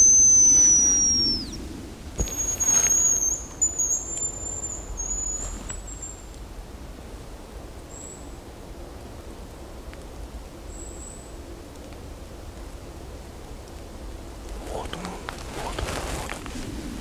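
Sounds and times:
bird whistling: 0.0 - 1.6, 2.2 - 6.2.

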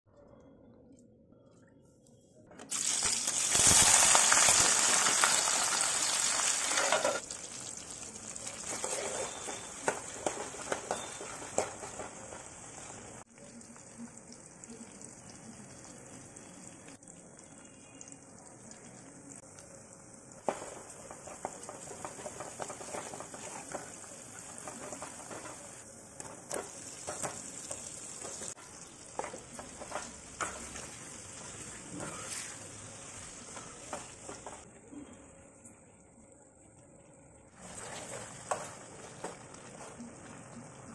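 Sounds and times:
onions sizzling in hot oil: 2.7 - 34.6, 37.6 - 40.9
metal spoon stirring in pan: 6.5 - 13.2, 20.4 - 34.6, 37.6 - 40.3.

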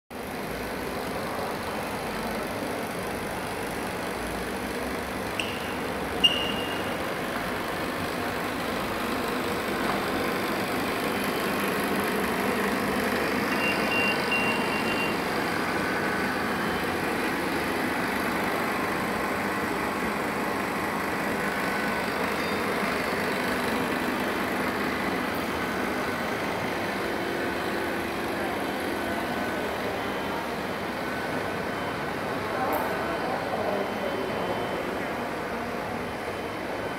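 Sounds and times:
machine hum with air noise: 0.2 - 36.9
short high beeps: 5.4 - 7.0, 13.5 - 15.2
brief high tone: 5.4 - 7.1, 13.5 - 15.2.

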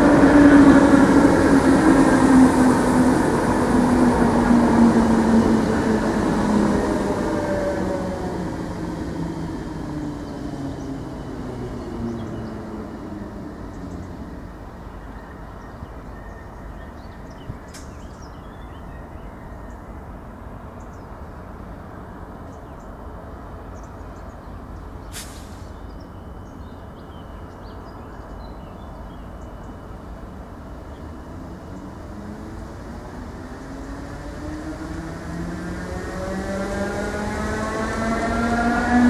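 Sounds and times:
electric train rumbling: 0.0 - 39.0
faint bird chirps: 23.8 - 30.1
short sharp hiss: 25.1 - 25.8.

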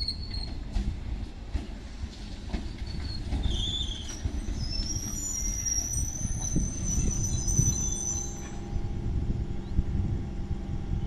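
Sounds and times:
train rolling with low rumble: 0.0 - 11.0
high brake squeal: 2.8 - 8.7.

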